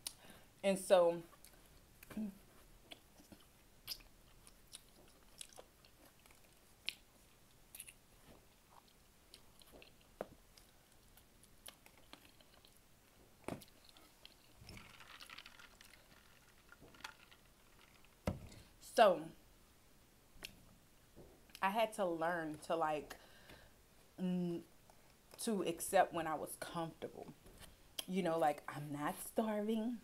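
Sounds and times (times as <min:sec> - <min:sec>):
person chewing with mouth clicks: 0:01.3 - 0:12.8.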